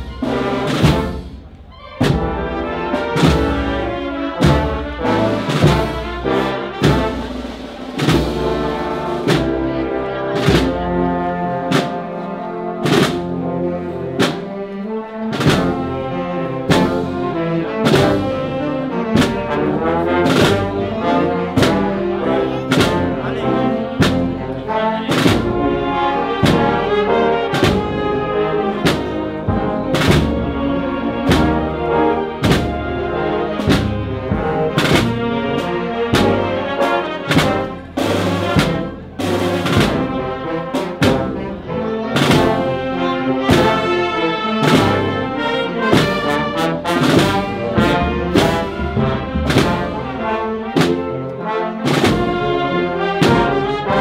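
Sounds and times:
steady drum beat: 0:00.0 - 0:12.1, 0:15.3 - 0:54.0
brass chords: 0:00.0 - 0:54.0
snare drums: 0:00.0 - 0:54.0.

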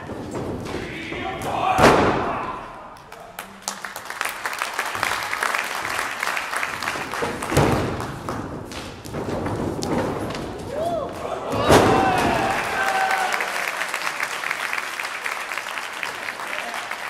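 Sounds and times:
body crashing onto ring boards: 0:00.0 - 0:02.6, 0:09.1 - 0:12.6
small audience clapping: 0:02.9 - 0:08.9, 0:12.0 - 0:17.0.

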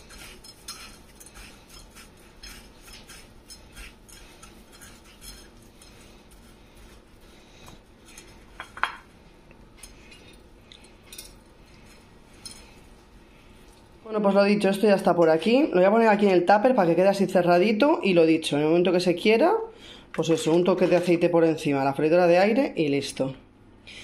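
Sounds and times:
crunching and scraping of crumbs: 0:00.0 - 0:08.6.

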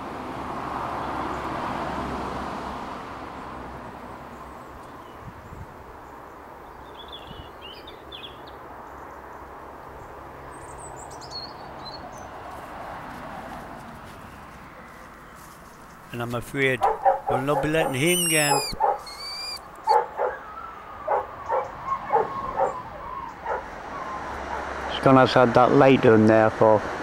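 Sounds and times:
vehicle passing: 0:00.0 - 0:04.8, 0:09.6 - 0:27.0
small bird chirping: 0:16.8 - 0:20.0.

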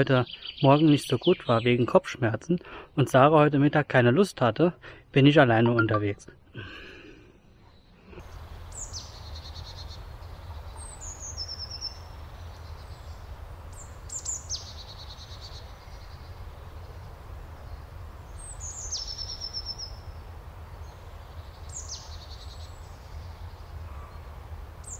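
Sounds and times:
songbird singing trills: 0:00.0 - 0:01.9, 0:05.6 - 0:06.2.

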